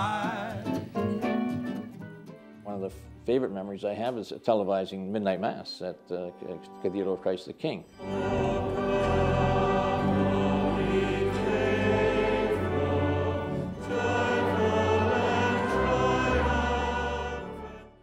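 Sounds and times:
choir singing long held notes: 7.9s - 18.0s.

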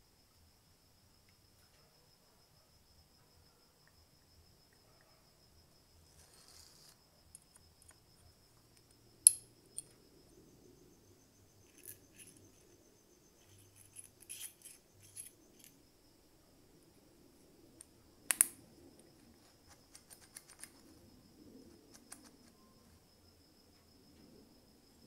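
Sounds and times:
small steel parts clinking: 11.6s - 12.7s, 13.4s - 15.8s.

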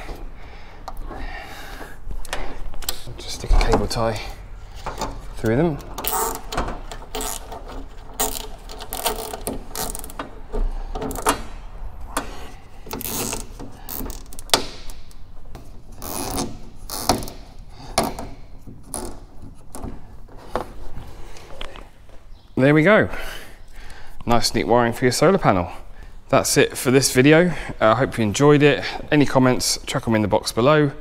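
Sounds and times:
clicks and rasps handling cables: 2.1s - 3.9s, 4.7s - 11.5s
cable tie ratcheting zip: 6.0s - 10.2s, 16.0s - 17.4s.

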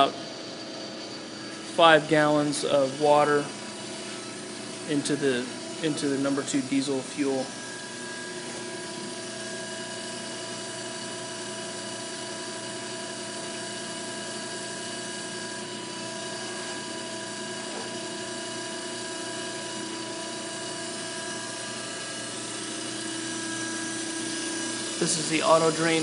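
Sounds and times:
electric pump motor humming: 0.0s - 26.0s
constant whining tones: 21.4s - 26.0s.

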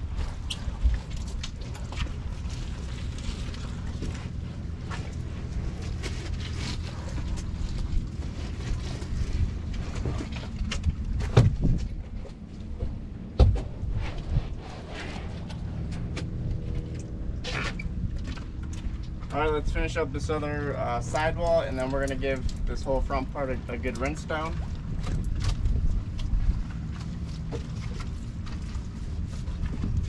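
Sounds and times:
brush scrubbing boat: 0.0s - 11.1s, 13.9s - 30.0s
low mechanical hum: 0.0s - 30.0s.

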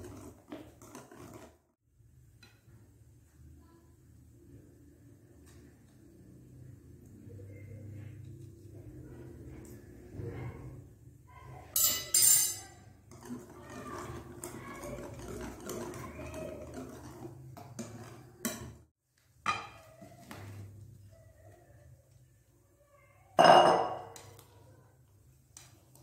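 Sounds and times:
whisk beating batter in bowl: 0.0s - 1.6s, 12.9s - 18.9s
glass bowl clink: 11.8s - 12.8s, 23.4s - 24.2s
metal clinking on glass: 11.8s - 12.8s.

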